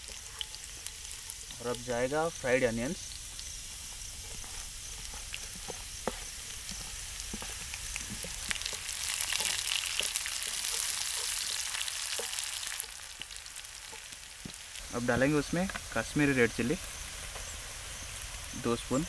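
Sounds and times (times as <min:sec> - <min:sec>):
oil sizzling in a pan: 0:00.0 - 0:19.0
wooden spatula scraping a pan: 0:03.8 - 0:12.4.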